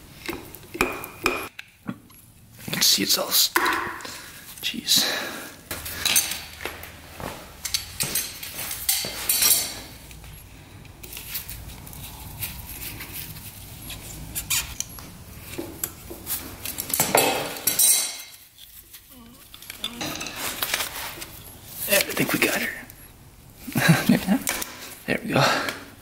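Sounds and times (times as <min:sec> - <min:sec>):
metal tools clinking: 0:05.9 - 0:06.6, 0:07.6 - 0:11.6, 0:16.6 - 0:22.5.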